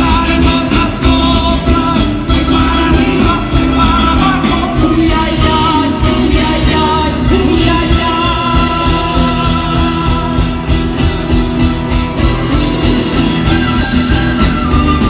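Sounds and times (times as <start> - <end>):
singing: 0.0 - 10.6
acoustic guitar: 0.0 - 15.0
percussion beat: 0.0 - 15.0.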